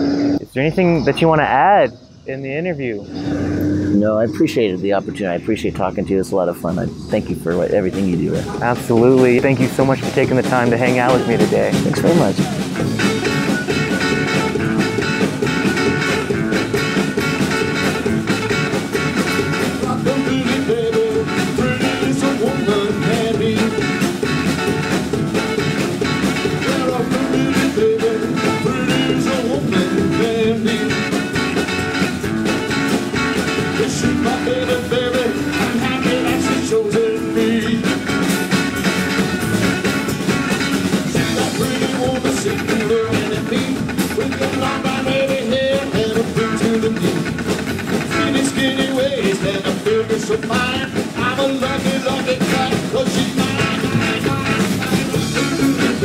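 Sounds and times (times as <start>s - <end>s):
rock and roll band playing: 3.9s - 56.0s
man singing: 8.6s - 13.6s, 19.8s - 24.1s, 26.5s - 31.3s, 33.6s - 38.4s, 41.0s - 47.4s, 48.0s - 56.0s.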